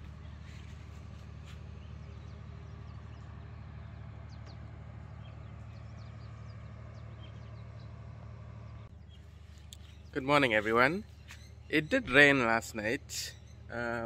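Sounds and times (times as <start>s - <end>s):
low mechanical hum: 0.0s - 14.0s
high bird chirps: 8.7s - 12.6s, 13.2s - 13.8s.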